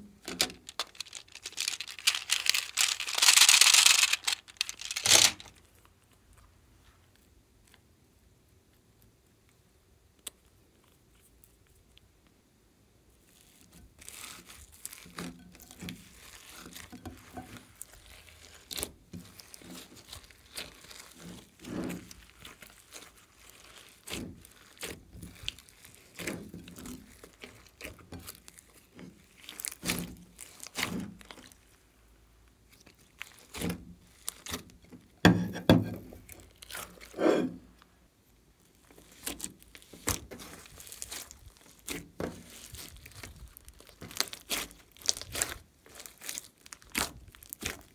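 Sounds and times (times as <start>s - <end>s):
slime squishing by hand: 0.0s - 6.5s, 13.2s - 47.9s
slime crackling: 0.2s - 6.0s, 13.3s - 31.9s, 32.6s - 35.2s, 38.6s - 47.9s.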